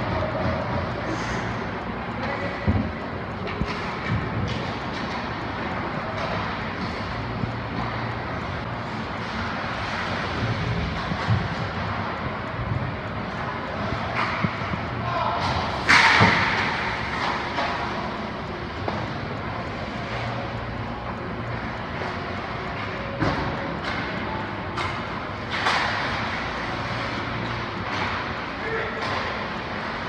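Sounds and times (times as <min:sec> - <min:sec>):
skates scraping ice: 0:08.8 - 0:12.1.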